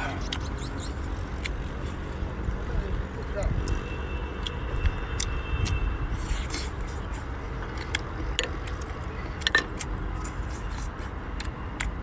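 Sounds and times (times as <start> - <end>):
person chewing: 1.3 - 2.6, 4.4 - 12.0.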